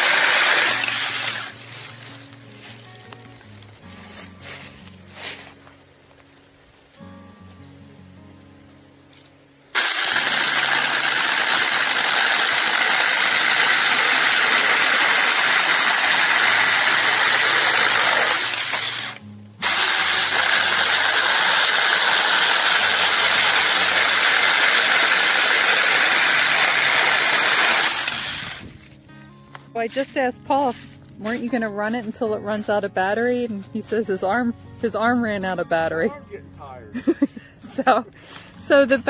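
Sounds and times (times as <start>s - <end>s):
electric chainsaw cutting branch: 0.0s - 2.0s, 9.7s - 28.9s.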